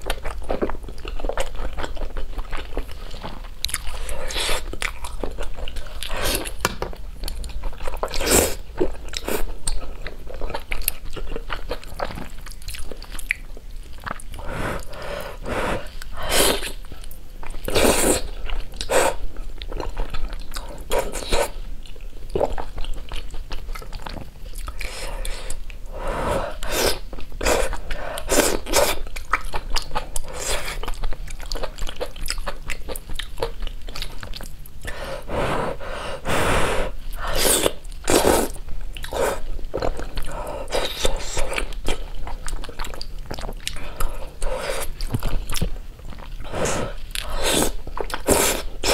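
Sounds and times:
wet chewing: 0.0s - 15.1s, 26.6s - 35.0s, 37.2s - 48.9s.

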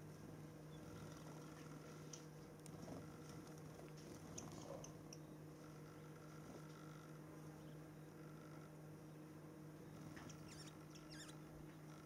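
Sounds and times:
faint steady hum: 0.0s - 12.0s
songbird chirps: 10.0s - 12.0s.

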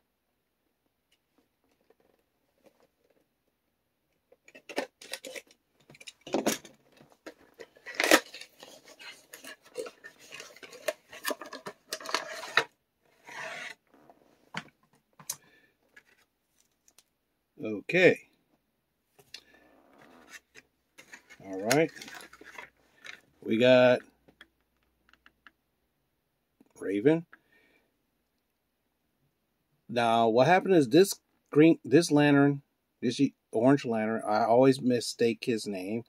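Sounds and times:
packaging crinkling: 7.4s - 12.7s, 20.5s - 23.2s.

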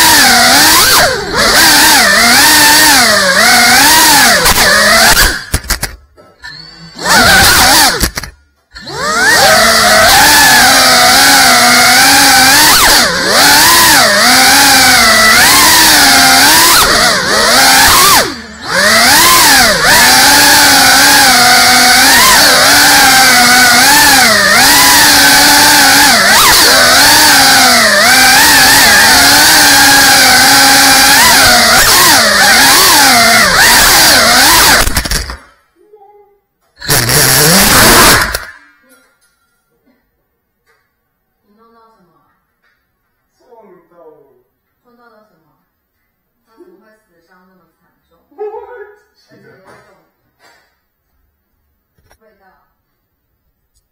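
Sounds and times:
quadcopter motors whining: 0.0s - 35.5s, 36.8s - 38.6s.

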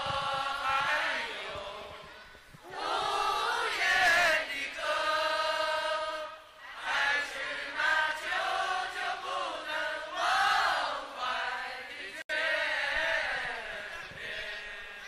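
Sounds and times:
crowd singing in unison: 0.0s - 15.0s.

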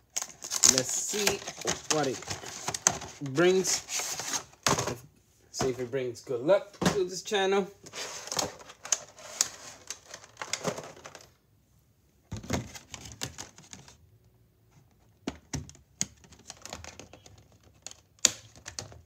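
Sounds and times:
plastic packaging clicking and crackling: 0.0s - 3.6s, 8.2s - 11.4s, 12.5s - 14.0s, 15.3s - 19.0s.

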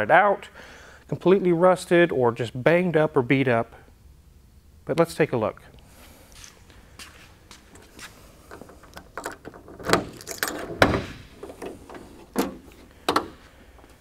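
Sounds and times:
trunk latch clunking open: 8.5s - 13.4s
keys jangling: 8.6s - 10.8s.

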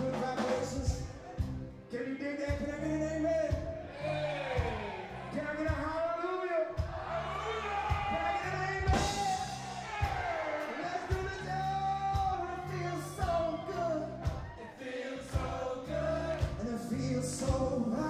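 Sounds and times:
bass notes: 0.0s - 6.0s, 6.8s - 14.5s, 15.2s - 18.0s
drum hits: 5.6s - 6.1s, 6.8s - 7.2s, 7.8s - 12.6s, 14.2s - 14.6s
person singing: 10.6s - 18.0s.

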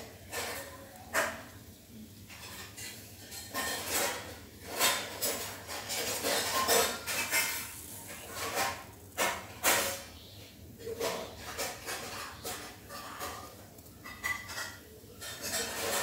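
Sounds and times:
yarn scraping through cloth: 2.3s - 10.1s.

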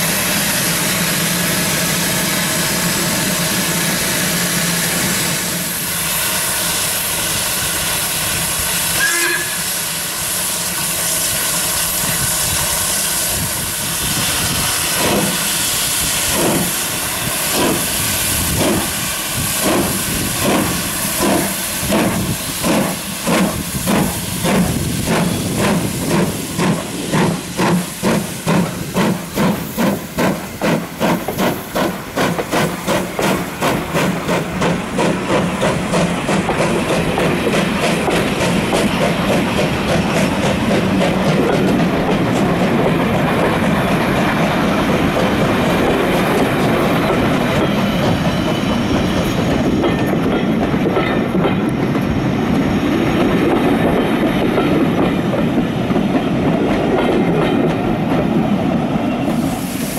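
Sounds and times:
steam hissing: 0.0s - 49.8s, 57.7s - 59.9s
steam locomotive exhaust beats: 0.0s - 59.9s.

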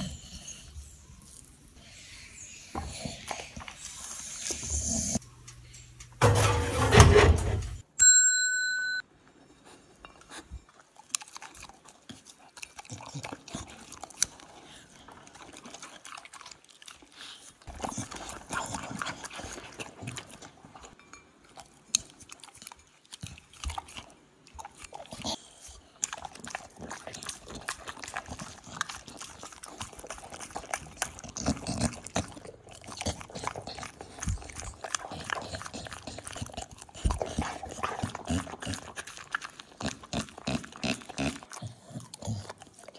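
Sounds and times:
dog chewing and crunching: 10.1s - 42.9s.

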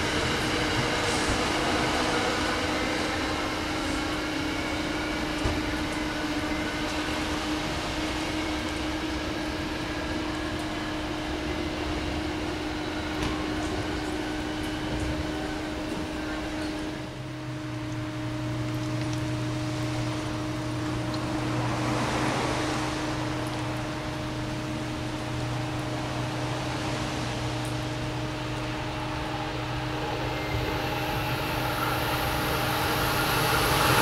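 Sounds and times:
deeper hum: 0.0s - 34.0s
electric train hum and blower: 0.0s - 34.0s
faint rising whine: 0.0s - 34.0s.

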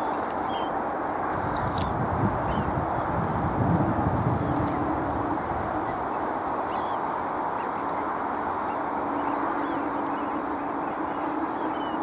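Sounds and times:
flock of birds calling: 4.4s - 12.0s.

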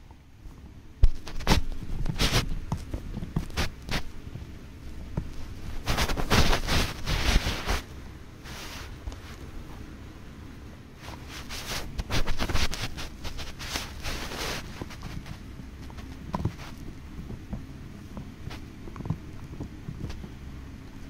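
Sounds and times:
dog gnawing a chew bone: 11.2s - 20.9s.

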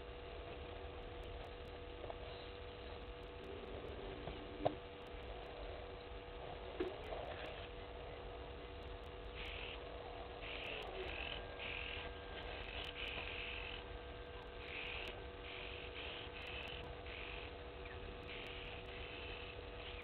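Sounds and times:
faint steady hum: 0.0s - 20.0s
short buzzy animal calls: 9.3s - 13.9s.

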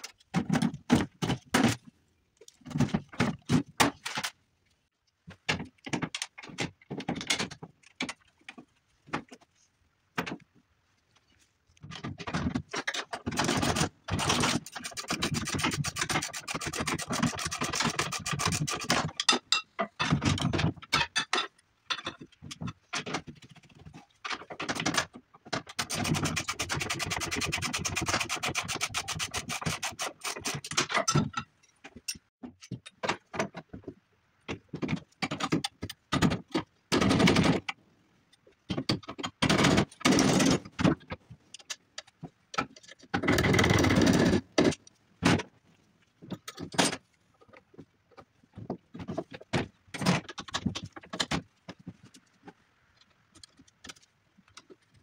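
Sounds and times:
hand tools clicking and scraping: 11.9s - 33.7s, 38.7s - 45.5s.

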